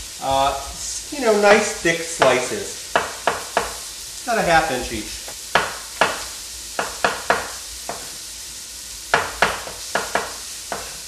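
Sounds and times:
vegetables sizzling in a pot: 0.0s - 11.0s
knife knocking on wooden cutting board: 5.5s - 6.2s, 6.8s - 8.1s, 9.1s - 11.0s.

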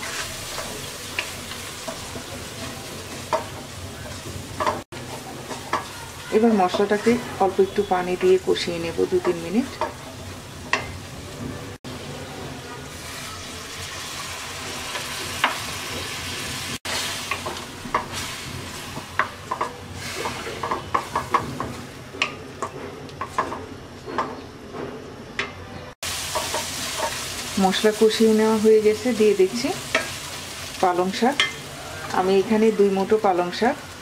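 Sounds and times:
wooden spatula scraping a pan: 0.0s - 3.5s
spice paste sizzling in a pan: 0.0s - 11.4s, 12.9s - 22.0s, 26.0s - 34.0s.

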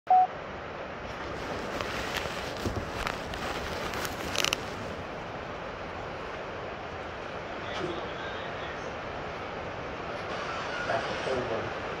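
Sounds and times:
steady background noise: 0.1s - 12.0s
light clicks and rustles: 1.1s - 5.0s.

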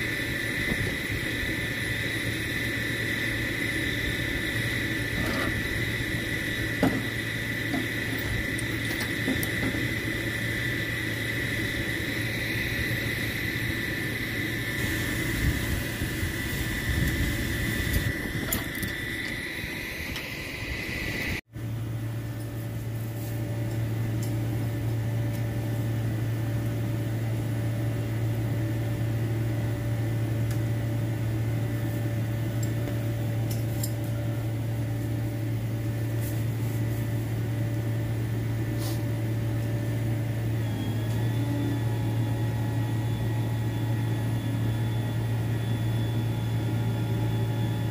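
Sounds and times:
truck engine humming: 0.0s - 22.4s
high whine: 0.0s - 47.9s.

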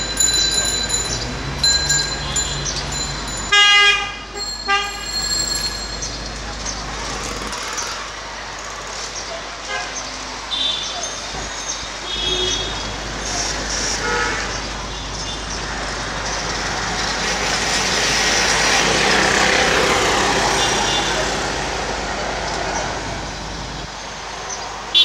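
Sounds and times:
street traffic: 0.0s - 25.0s
vehicle horns tooting: 1.1s - 6.2s, 9.6s - 11.3s, 12.0s - 13.1s, 13.9s - 15.4s, 20.4s - 21.3s.

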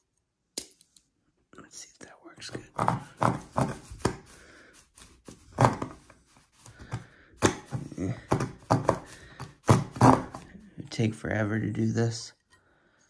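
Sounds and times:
hand-sawing wooden board: 2.7s - 10.5s.

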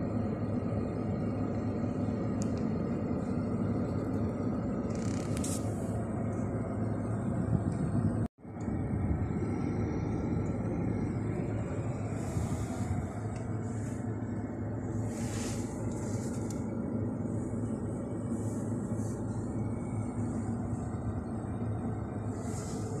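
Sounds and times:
car engine and road noise: 0.0s - 23.0s.

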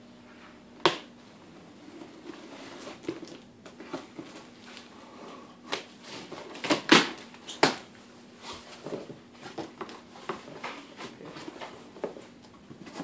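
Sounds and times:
tape tearing: 5.7s - 7.9s.

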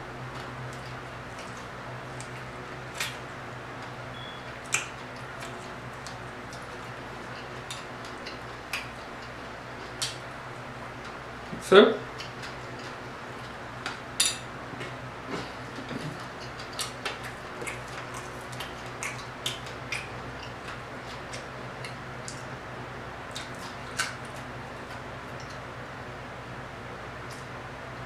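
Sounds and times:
low hum: 0.0s - 11.7s
crunchy chewing: 14.8s - 22.5s, 23.2s - 25.6s.

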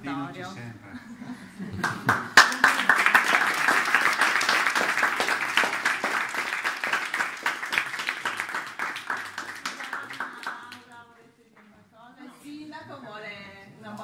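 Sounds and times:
small group applauding: 1.7s - 11.7s.

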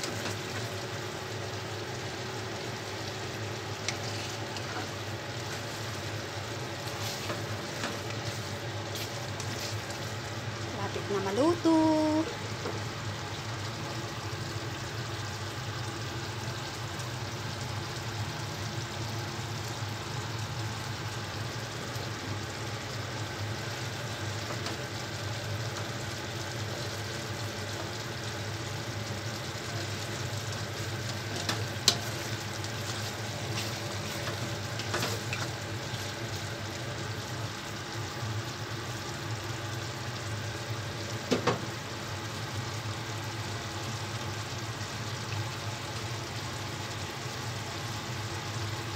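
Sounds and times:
stew bubbling in pan: 0.0s - 48.9s.

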